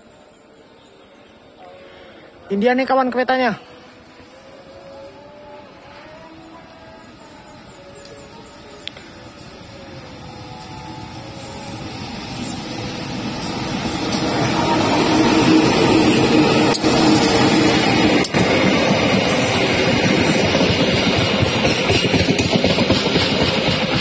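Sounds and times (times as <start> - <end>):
locomotive engine drone: 3.2 - 21.6.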